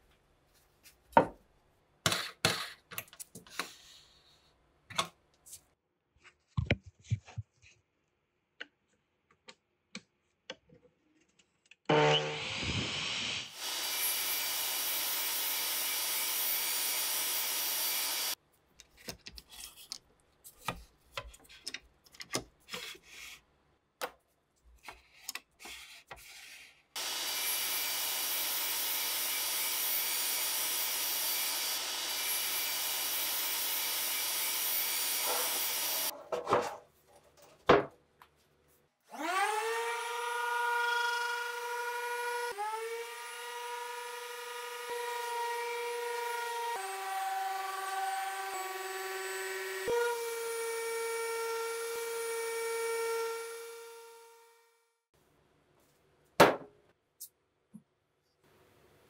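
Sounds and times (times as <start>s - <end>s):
mitre saw cutting wood: 11.9s - 18.4s, 27.0s - 36.1s, 39.1s - 54.5s.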